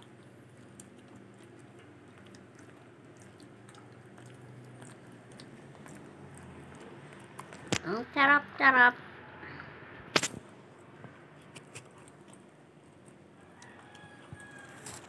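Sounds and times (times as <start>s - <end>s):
dog gnawing chew stick: 0.0s - 7.7s, 11.1s - 15.0s.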